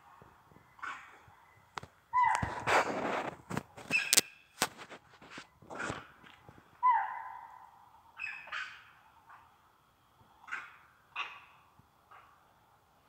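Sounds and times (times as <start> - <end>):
animal call clear tone: 0.8 - 2.9, 6.8 - 9.5, 10.4 - 12.4
knocks and rustles: 1.8 - 6.7.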